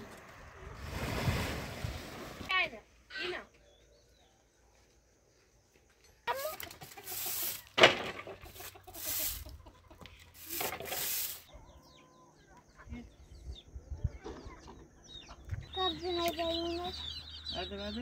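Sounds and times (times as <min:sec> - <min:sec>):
chickens clucking: 0:06.2 - 0:18.0.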